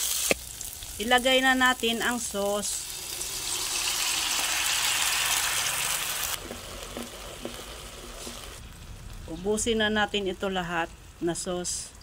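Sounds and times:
sauce sizzling in hot oil: 0.0 - 11.0.

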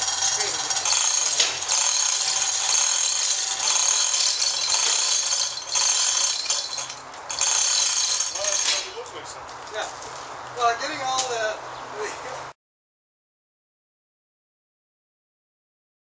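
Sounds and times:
chain hoist clattering and ratcheting: 0.0 - 9.2.

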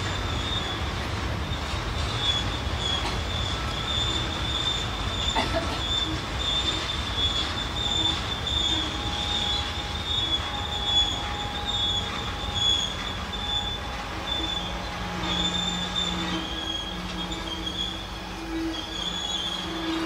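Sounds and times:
low rumble of wheels on track: 0.0 - 20.0
train wheels squealing on rails: 0.0 - 20.0.

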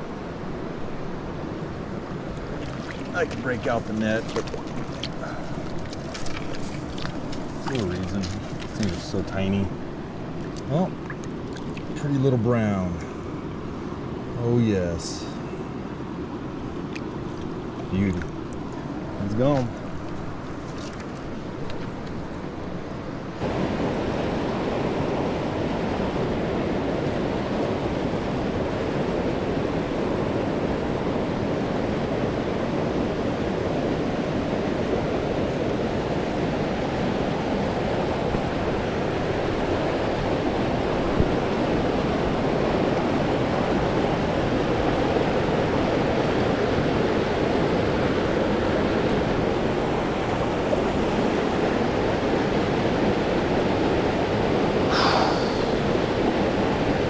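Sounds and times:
stream water rushing: 0.0 - 15.0, 15.6 - 57.0.

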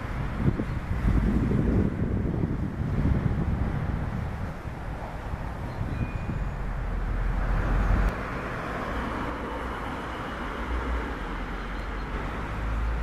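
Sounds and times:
wind rumble on microphone: 0.0 - 9.4
steady road hum: 0.0 - 13.0
car passing: 6.3 - 13.0.

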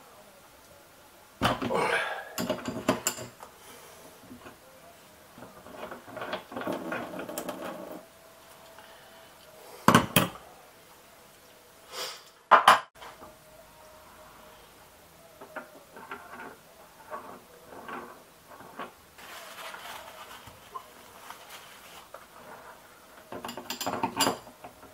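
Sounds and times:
metal tools clinking against sink: 2.4 - 3.4, 23.3 - 24.5.

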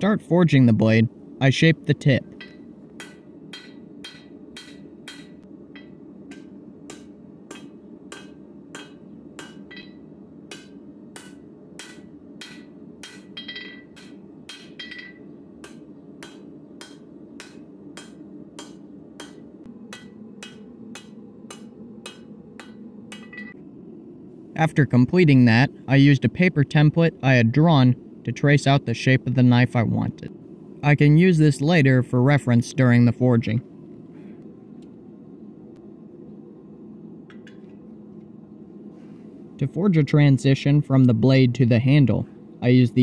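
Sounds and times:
steady low hum: 0.0 - 43.0
hammer striking steel on anvil: 2.3 - 23.6.

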